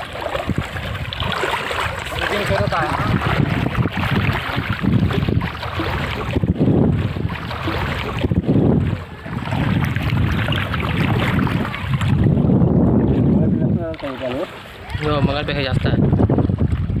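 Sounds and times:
floodwater sloshing around legs: 0:00.0 - 0:17.0
wind rumbling on microphone: 0:00.0 - 0:17.0.

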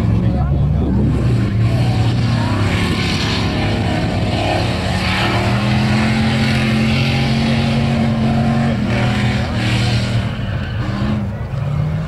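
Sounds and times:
car engine at high revs: 0:00.0 - 0:12.0.

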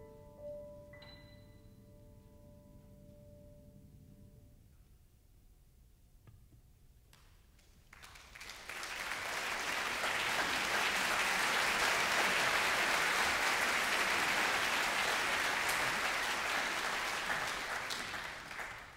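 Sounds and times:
audience applauding: 0:07.6 - 0:18.9.

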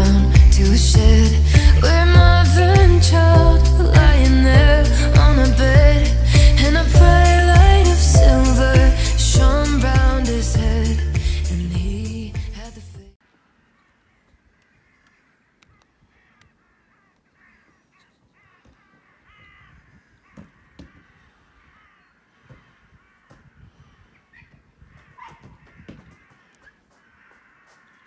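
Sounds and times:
crows cawing: 0:13.4 - 0:28.0.

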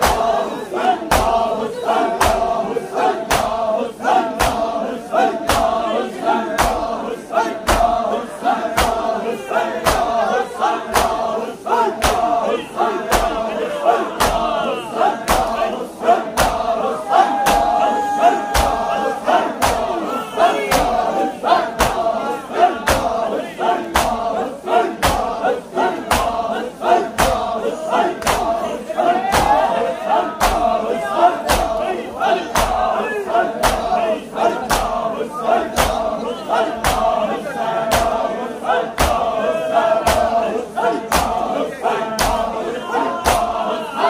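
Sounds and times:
men slapping their chests: 0:00.0 - 0:00.4, 0:01.0 - 0:02.6, 0:03.2 - 0:05.8, 0:06.4 - 0:07.0, 0:07.6 - 0:09.1, 0:09.8 - 0:13.4, 0:14.2 - 0:29.7, 0:30.4 - 0:30.8, 0:31.4 - 0:37.2, 0:37.8 - 0:38.3, 0:38.9 - 0:39.3, 0:40.0 - 0:40.4, 0:41.0 - 0:41.5, 0:42.1 - 0:42.5, 0:43.2 - 0:43.6
men chanting and shouting: 0:00.0 - 0:44.0.

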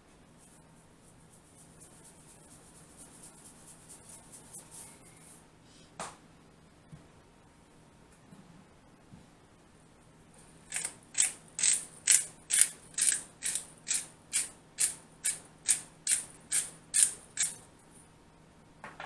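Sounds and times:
spice grinder grinding: 0:10.7 - 0:17.6.

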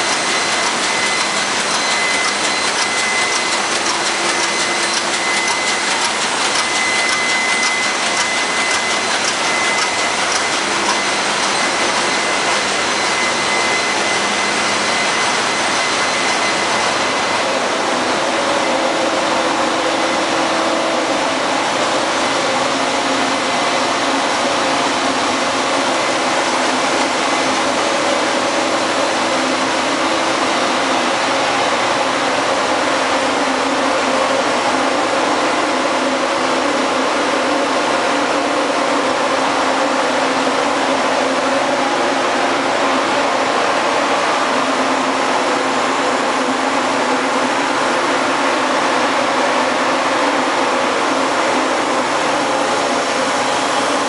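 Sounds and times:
engine room machinery din: 0:00.0 - 0:54.0.

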